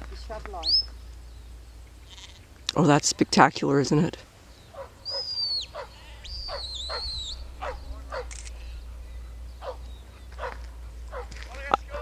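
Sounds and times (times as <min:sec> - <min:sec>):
low wind rumble: 0:00.0 - 0:12.0
dog barking: 0:04.7 - 0:08.4, 0:09.6 - 0:12.0.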